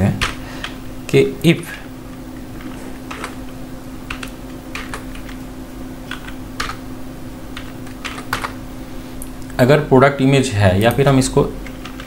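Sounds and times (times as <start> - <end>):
computer keyboard typing: 2.4 - 5.4, 6.1 - 6.8, 7.5 - 8.6, 11.6 - 12.0.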